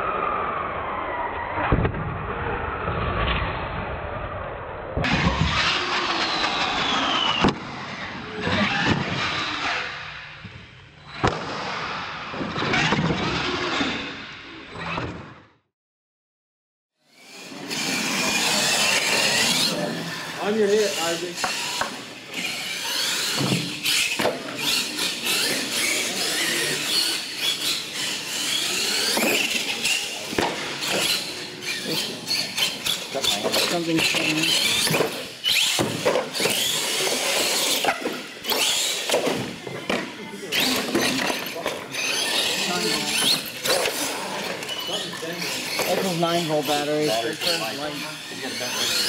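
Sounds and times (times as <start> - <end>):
toy truck motors revving: 5.4 - 7.4, 17.1 - 49.0.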